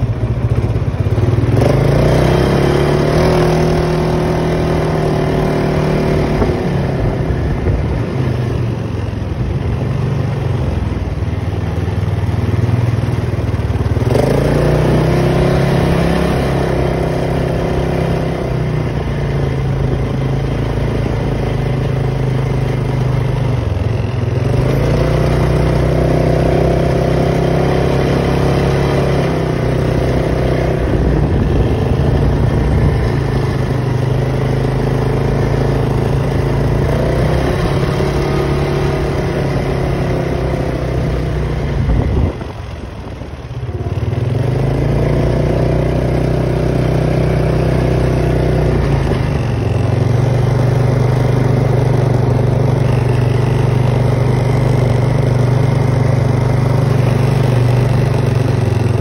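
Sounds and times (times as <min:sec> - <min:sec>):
atv engine running: 0:00.0 - 0:59.0.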